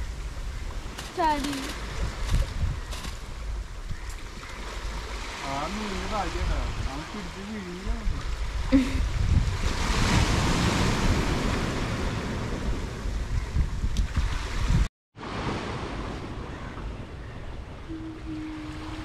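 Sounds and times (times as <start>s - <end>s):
wind buffeting microphone: 0.0s - 14.9s
sea surf washing on shore: 4.0s - 17.2s.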